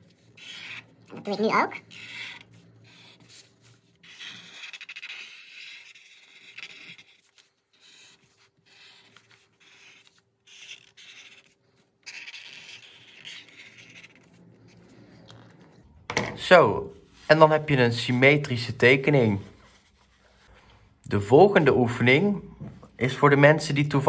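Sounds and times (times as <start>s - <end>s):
marker scratching on paper: 0.0s - 15.2s, 19.4s - 20.6s.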